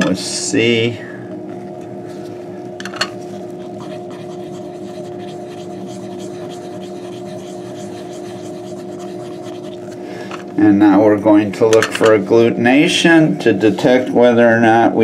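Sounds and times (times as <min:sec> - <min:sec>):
machine hum: 0:00.0 - 0:15.0
stick scratching on card: 0:03.3 - 0:10.0.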